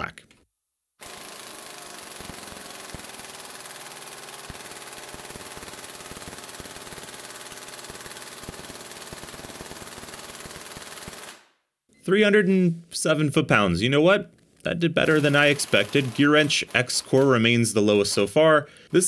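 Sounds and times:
pneumatic impact wrench hammering: 0:01.0 - 0:11.4.

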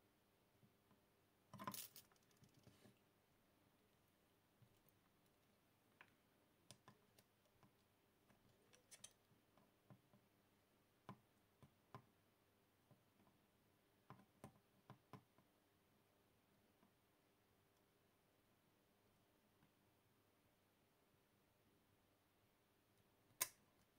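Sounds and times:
small metal clicks: 0:06.7 - 0:09.3.

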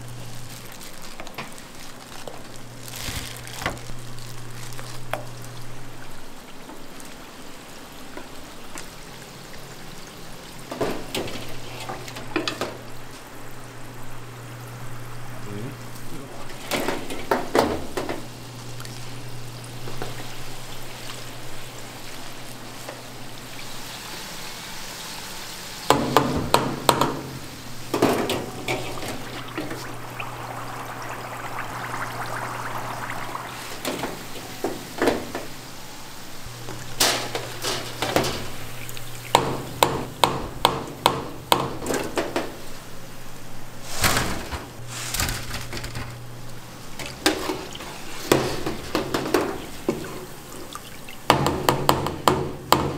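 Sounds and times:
oil sizzling in deep fryer: 0:00.0 - 0:52.9
low hum: 0:27.8 - 0:35.0
skimmer basket clattering on steel: 0:36.9 - 0:38.6.

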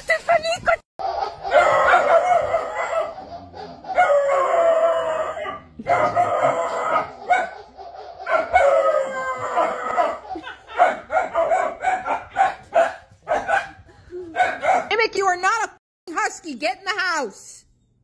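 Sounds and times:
small dog howling: 0:03.9 - 0:07.2, 0:08.3 - 0:10.2.

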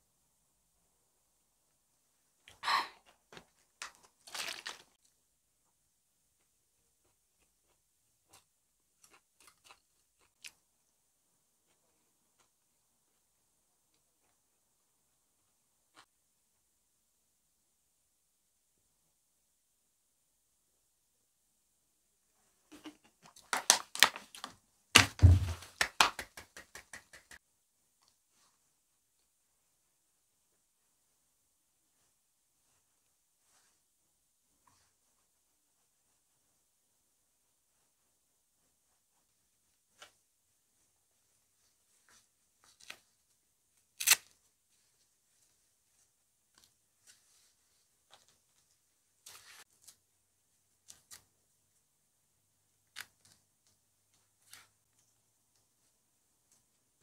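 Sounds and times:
plastic bottle crackling: 0:04.2 - 0:04.9.

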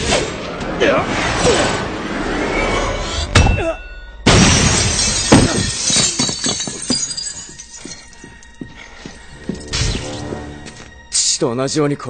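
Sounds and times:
glass shattering: 0:03.4 - 0:08.2
orchestral music: 0:07.6 - 0:12.0.

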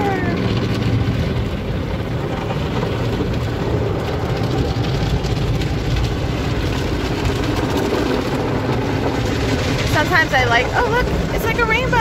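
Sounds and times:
car wash machinery rumbling: 0:00.0 - 0:12.0
water scrubbing foam on car: 0:00.0 - 0:12.0.

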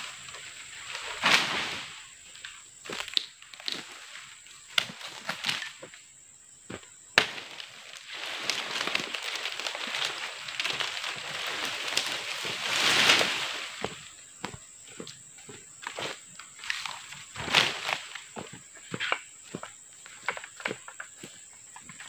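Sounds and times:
dry palm fronds rustling: 0:00.0 - 0:06.0, 0:07.2 - 0:22.0
fronds snapping: 0:00.9 - 0:04.0, 0:04.7 - 0:05.8, 0:07.2 - 0:14.0.

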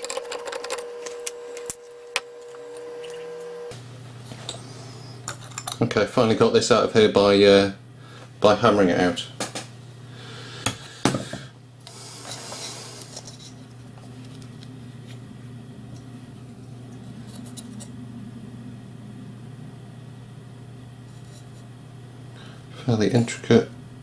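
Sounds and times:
steady low hum: 0:00.0 - 0:24.0.

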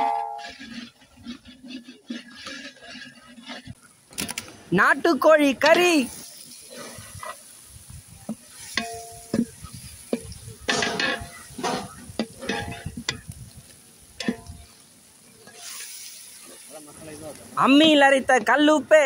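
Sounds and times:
metal ladle scraping pot: 0:00.0 - 0:04.0, 0:06.2 - 0:16.8
masala frying: 0:00.0 - 0:19.0.

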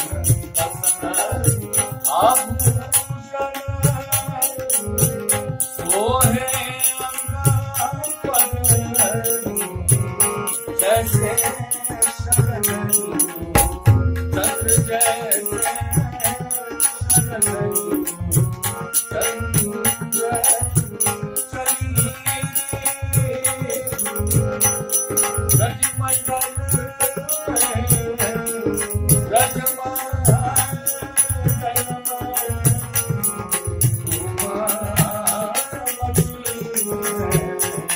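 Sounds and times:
harmonium: 0:00.0 - 0:37.9
jingling hand percussion: 0:00.0 - 0:37.9
man singing: 0:00.0 - 0:37.9
steady drum beat: 0:07.4 - 0:18.7, 0:19.5 - 0:37.7.

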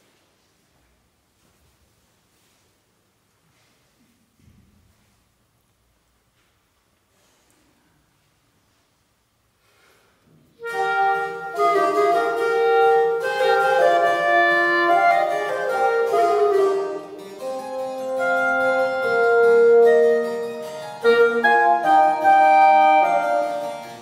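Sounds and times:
clarinet: 0:10.5 - 0:24.0
bassoon: 0:10.6 - 0:24.0
harpsichord: 0:10.6 - 0:24.0.

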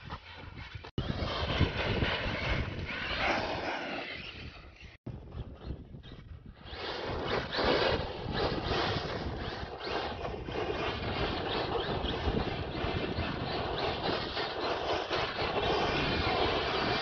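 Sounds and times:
tyres spinning and skidding on dirt: 0:02.3 - 0:04.8
electric motor whine: 0:06.5 - 0:17.0.

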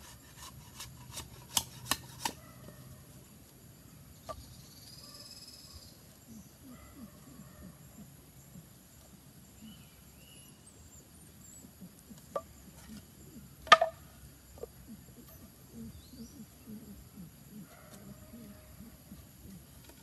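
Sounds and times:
knife striking bamboo tube: 0:00.4 - 0:02.4, 0:13.6 - 0:14.0.

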